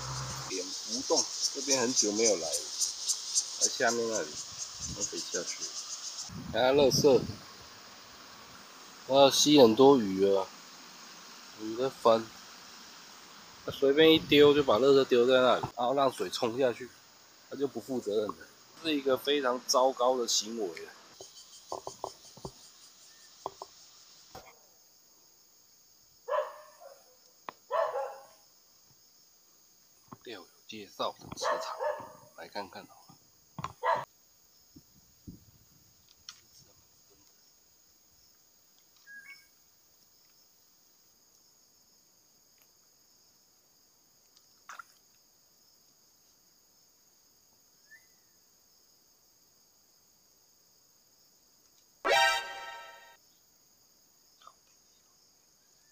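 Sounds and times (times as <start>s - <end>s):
high-pitched insect drone: 0.0s - 24.5s, 52.1s - 53.2s
high-pitched insect chorus: 0.0s - 55.9s
dog barking: 26.3s - 28.4s, 31.4s - 32.3s, 33.8s - 34.1s
rising and falling chirp: 52.1s - 53.2s
short sharp sound: 52.1s - 53.2s.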